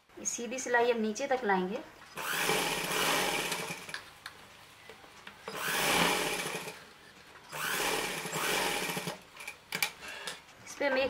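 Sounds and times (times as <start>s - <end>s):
sewing machine stitching: 2.2s - 3.9s, 5.5s - 6.8s, 7.5s - 9.2s.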